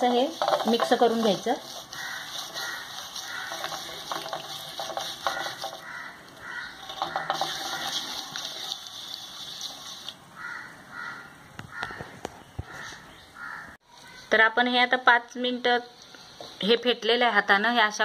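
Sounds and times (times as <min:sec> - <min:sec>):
fingers rubbing on metal plate: 0:00.0 - 0:06.0, 0:06.7 - 0:10.1.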